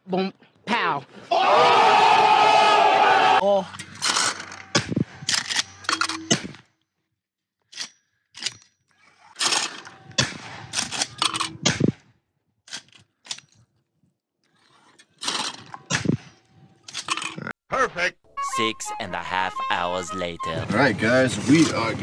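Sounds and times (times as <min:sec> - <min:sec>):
shotgun shots: 0:09.4 - 0:12.0.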